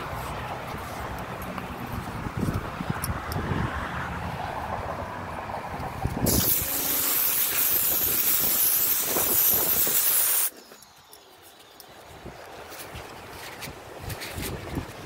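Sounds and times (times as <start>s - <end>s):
pressure washer spraying water: 6.3s - 10.6s.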